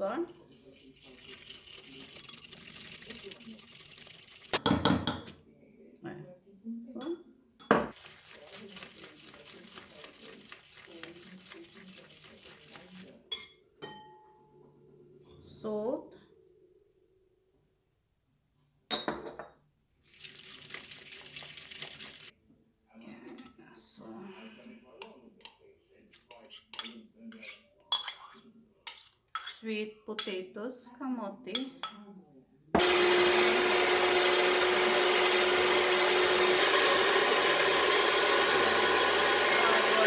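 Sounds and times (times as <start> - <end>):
beaters churning wet mixture: 0.0 - 4.6, 7.9 - 13.3, 20.0 - 22.3, 32.8 - 40.0
whisk rattling against glass bowl: 0.0 - 5.2, 7.9 - 13.5
hand mixer motor whine: 32.8 - 40.0.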